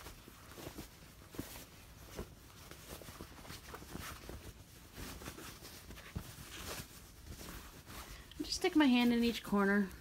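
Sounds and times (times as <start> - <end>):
fabric rustling: 0.0 - 10.0.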